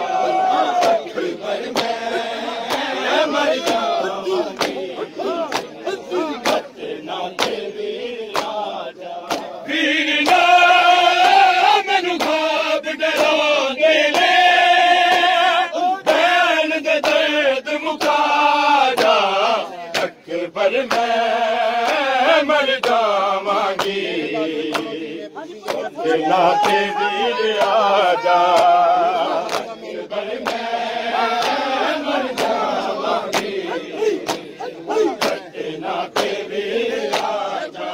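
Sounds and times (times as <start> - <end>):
crowd of men chanting: 0.0 - 37.9
hands slapping chests: 0.3 - 7.7, 8.3 - 9.6, 10.2 - 10.5, 12.1 - 12.5, 13.1 - 13.4, 15.0 - 15.4, 17.9 - 18.3, 18.9 - 19.3, 19.9 - 20.2, 20.8 - 21.2, 21.8 - 22.1, 22.8 - 23.1, 23.7 - 25.0, 25.6 - 27.9, 28.5 - 37.5.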